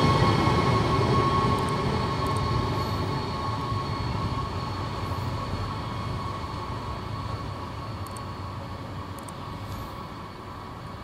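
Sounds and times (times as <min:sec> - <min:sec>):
electric train rumble and whine: 0:00.0 - 0:11.0.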